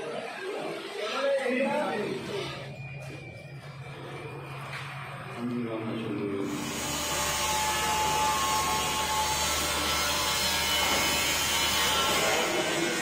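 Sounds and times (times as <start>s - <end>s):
angle grinder cutting steel: 6.4s - 13.0s.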